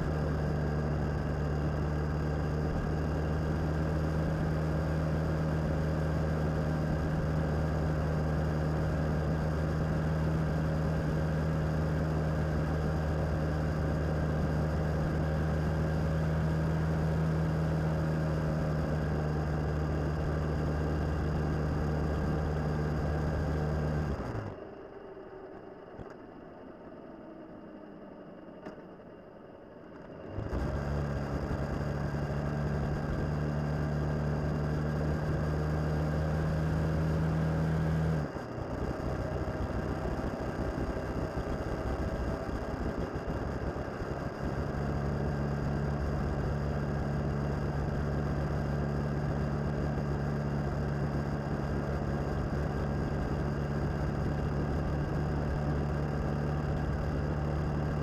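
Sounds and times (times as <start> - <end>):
motorcycle engine cruising: 30.1 - 58.0.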